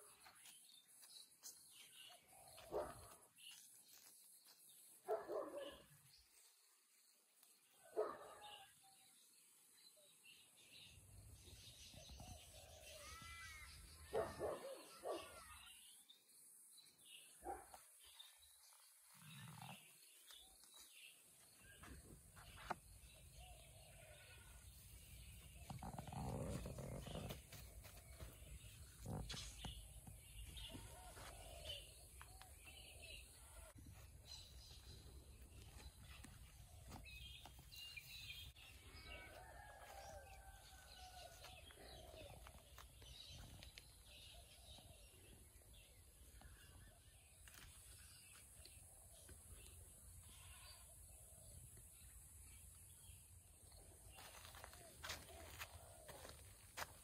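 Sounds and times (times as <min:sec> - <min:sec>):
small birds chirping: 0:41.4 - 0:50.9.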